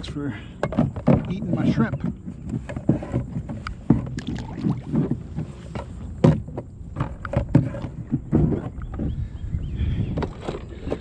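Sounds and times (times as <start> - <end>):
knocks on kayak hull: 0.6 - 9.2
water splashing against kayak: 0.6 - 11.0
wind on microphone: 1.0 - 11.0.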